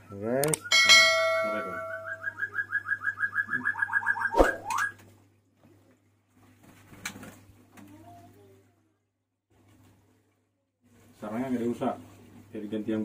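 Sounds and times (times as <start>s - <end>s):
chirping tones: 0.0s - 5.0s
sharp click: 0.4s - 0.7s
ringing chime: 0.7s - 2.4s.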